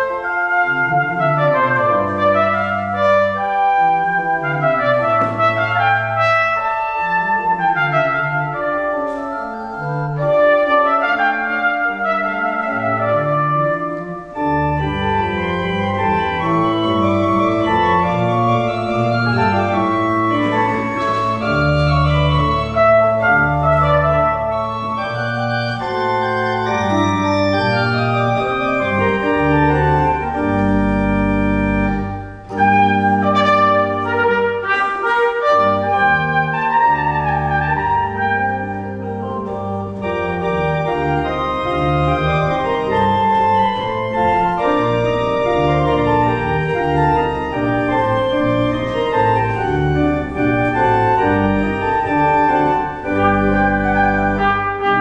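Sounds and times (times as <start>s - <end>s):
pipe organ chords: 0.0s - 55.0s
trumpet melody: 0.0s - 55.0s.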